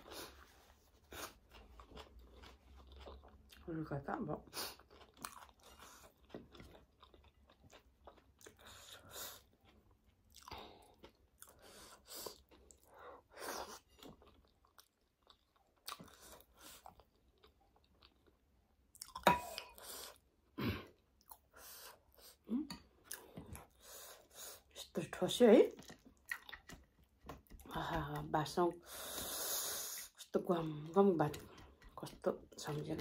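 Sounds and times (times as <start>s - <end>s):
close chewing: 0.0s - 20.2s, 25.7s - 27.7s.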